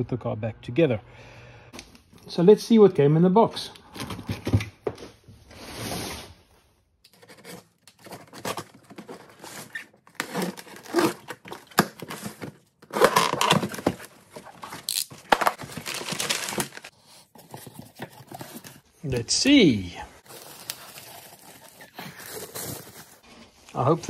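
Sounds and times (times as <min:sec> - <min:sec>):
tape tearing: 0:07.1 - 0:16.9, 0:20.2 - 0:23.2
cardboard scraping: 0:07.1 - 0:19.0, 0:20.2 - 0:23.9
packing paper crinkling: 0:07.2 - 0:18.9, 0:20.2 - 0:23.3.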